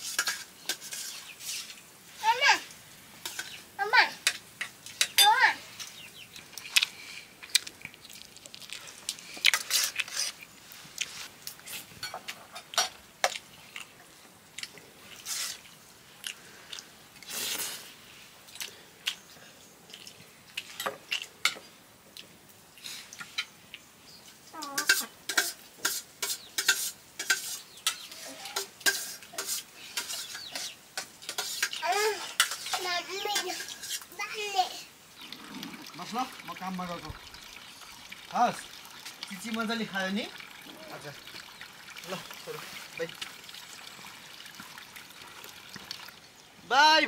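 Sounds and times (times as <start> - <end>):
spoons clinking on steel plates: 0.0 - 1.7, 3.2 - 3.6, 4.2 - 5.4, 12.0 - 13.0, 24.7 - 34.1.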